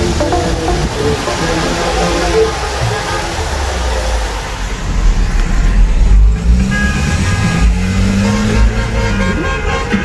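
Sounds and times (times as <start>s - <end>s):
car horns honking: 0.0s - 4.1s, 6.6s - 10.0s.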